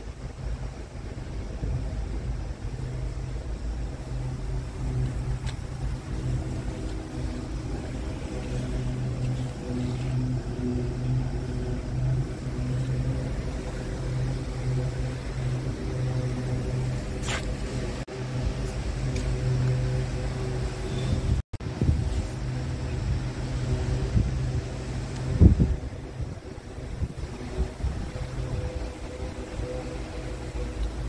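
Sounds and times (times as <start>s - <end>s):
diesel engine idling: 2.4s - 20.9s.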